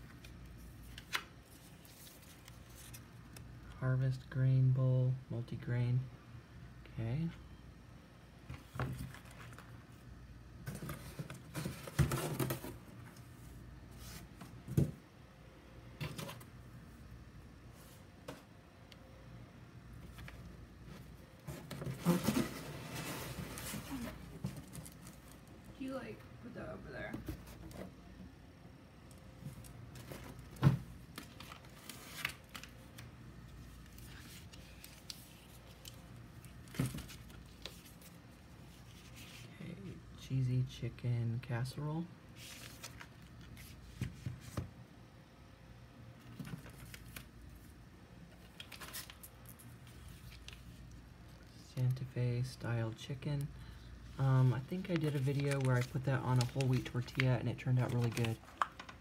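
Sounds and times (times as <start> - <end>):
plastic packets crinkling: 54.3 - 59.0.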